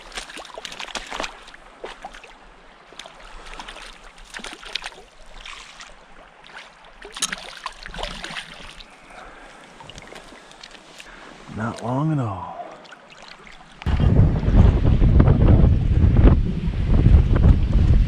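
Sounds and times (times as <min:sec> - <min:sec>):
fish splashing at surface: 0:00.0 - 0:11.2, 0:12.7 - 0:13.9
running water: 0:00.0 - 0:14.0.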